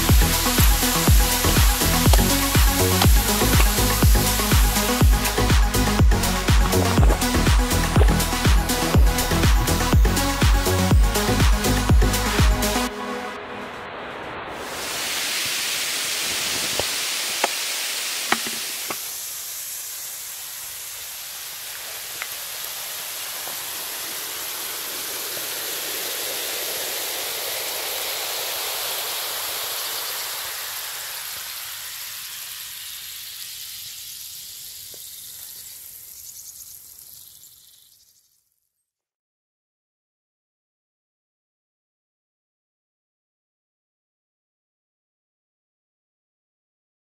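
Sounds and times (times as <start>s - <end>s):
soda foam fizzing: 0.0s - 9.9s, 14.5s - 38.3s.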